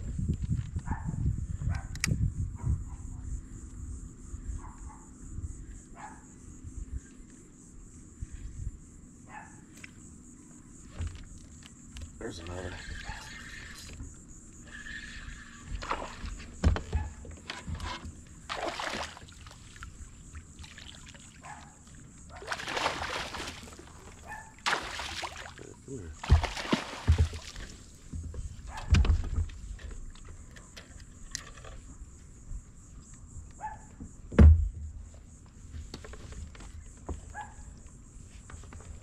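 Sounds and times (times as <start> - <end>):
fish splashing in water: 18.4 - 27.9
dull thumps: 26.2 - 29.6, 34.0 - 35.0.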